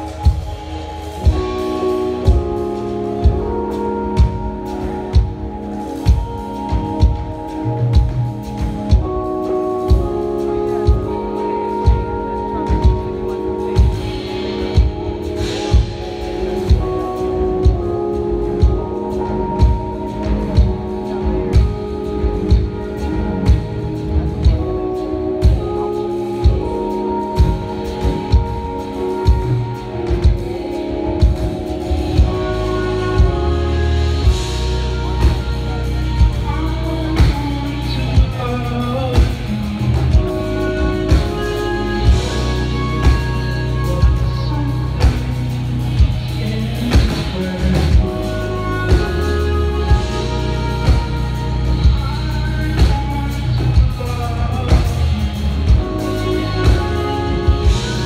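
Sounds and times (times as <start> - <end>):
jazz fusion band playing: 0.0 - 58.0
trumpet melody: 0.0 - 58.0.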